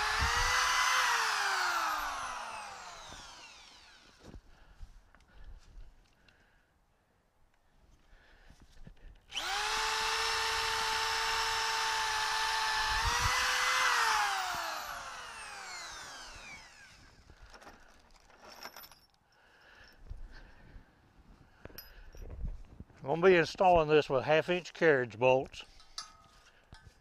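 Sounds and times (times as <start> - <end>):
electric drill boring wood: 0.0 - 4.4, 9.3 - 17.4.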